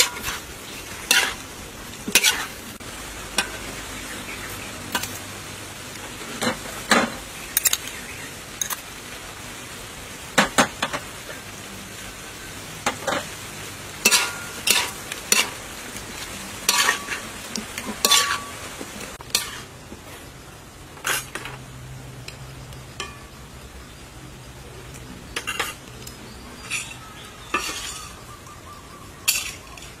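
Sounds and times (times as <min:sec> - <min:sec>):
metal spatula scraping wok: 0:00.0 - 0:03.8, 0:04.4 - 0:05.3, 0:06.0 - 0:09.0, 0:14.0 - 0:20.3, 0:20.9 - 0:22.4, 0:25.3 - 0:28.3, 0:29.2 - 0:30.0
food sizzling: 0:00.0 - 0:30.0.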